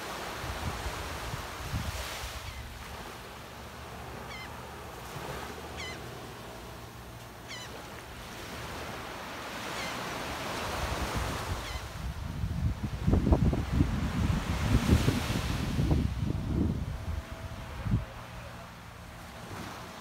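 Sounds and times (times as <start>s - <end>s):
small waves washing onto sand: 0.0s - 20.0s
bird call notes: 5.7s - 6.1s.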